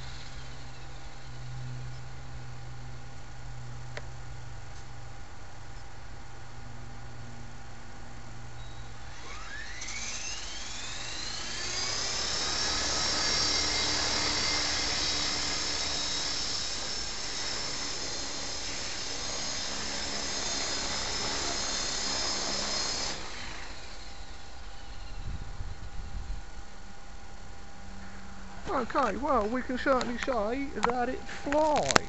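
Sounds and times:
rc helicopter motor whine: 0:00.0 - 0:03.0, 0:08.6 - 0:28.6.

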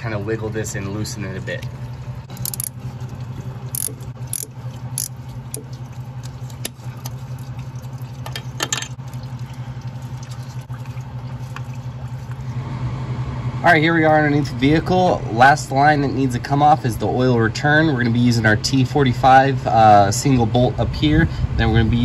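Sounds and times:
low hum: 0:00.0 - 0:22.0
ratchet clicking and scraping: 0:02.3 - 0:02.8, 0:03.7 - 0:05.2.

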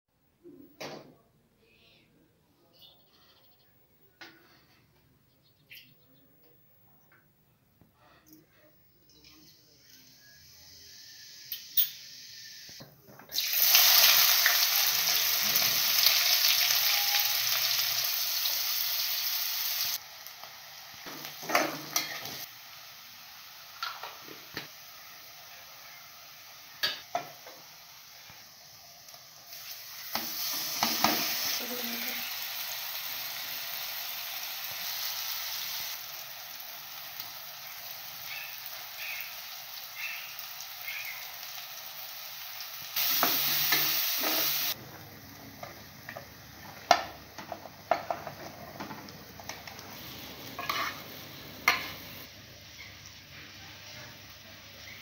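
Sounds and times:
hot oil sizzling: 0:09.1 - 0:55.0
metal spatula scraping pan: 0:50.6 - 0:52.0.

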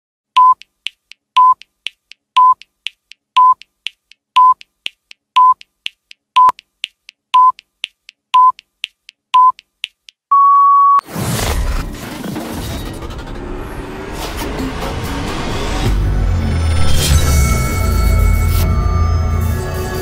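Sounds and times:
electronic countdown beeps: 0:00.4 - 0:00.8, 0:01.4 - 0:01.7, 0:02.4 - 0:02.7, 0:03.4 - 0:03.7, 0:04.4 - 0:04.7, 0:05.4 - 0:05.7, 0:06.4 - 0:06.7, 0:07.3 - 0:07.7, 0:08.3 - 0:08.7, 0:09.4 - 0:09.7, 0:10.3 - 0:11.0.

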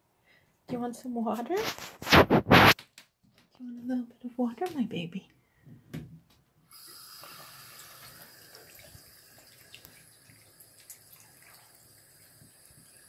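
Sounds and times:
faucet running: 0:06.7 - 0:13.0.

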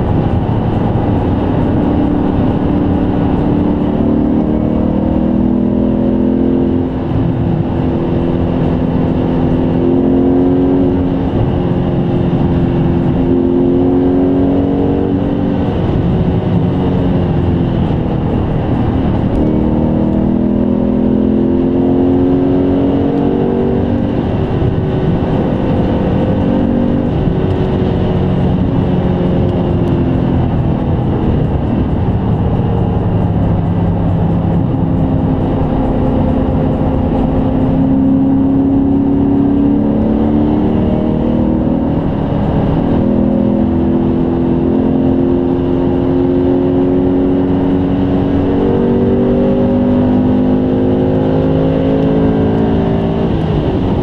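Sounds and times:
car engine cruising: 0:00.0 - 0:54.0
road noise: 0:00.0 - 0:54.0.

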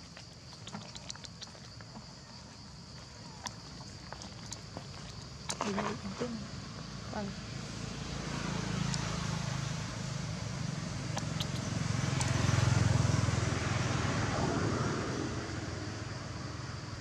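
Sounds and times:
vehicle engine passing by: 0:07.3 - 0:16.9.

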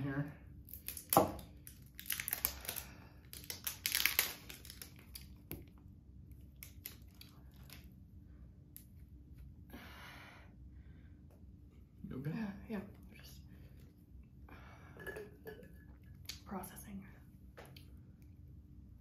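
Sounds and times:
snack packaging tearing: 0:00.7 - 0:05.4, 0:06.6 - 0:07.8
packaging crinkling: 0:00.7 - 0:05.5.

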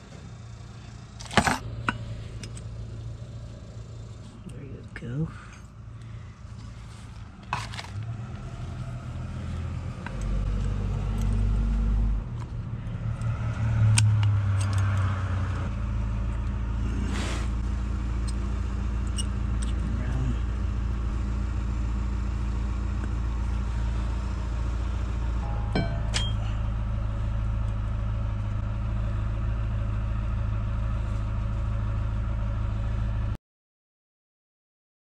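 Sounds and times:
sharp metallic clinks: 0:25.4 - 0:26.8.

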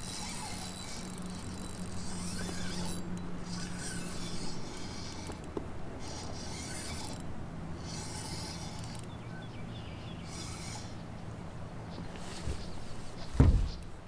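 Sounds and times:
fishing reel whirring: 0:00.0 - 0:09.2, 0:10.2 - 0:11.2
low hum: 0:00.0 - 0:14.0.

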